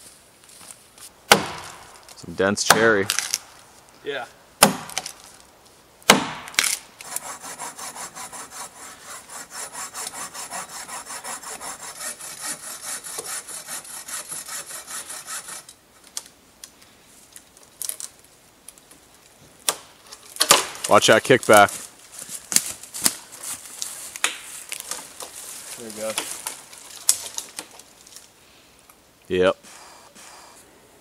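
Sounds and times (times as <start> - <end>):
axe striking tree trunk: 1.3 - 1.9, 2.6 - 3.4, 4.6 - 5.2, 6.0 - 6.8, 19.6 - 20.9
bow saw cutting wood: 7.0 - 15.8.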